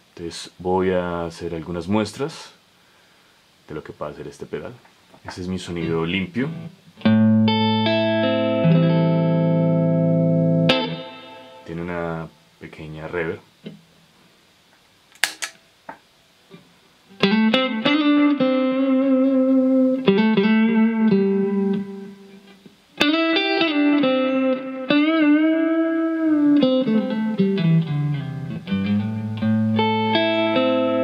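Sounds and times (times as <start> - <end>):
electric guitar with reverb: 6.5 - 12.4, 17.1 - 31.0
pedal footswitch click: 15.2 - 15.6.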